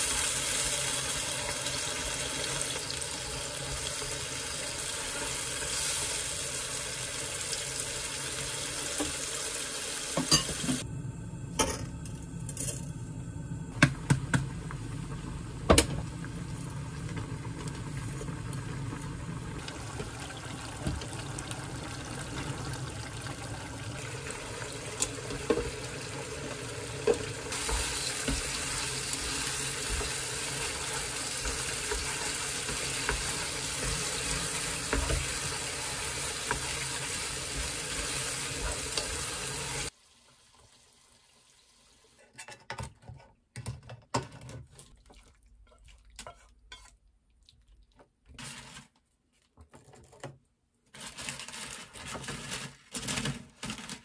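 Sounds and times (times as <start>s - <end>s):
shrimp sizzling in frying pan: 0.0s - 10.8s, 16.2s - 40.0s
water boiling in pot: 0.0s - 42.1s.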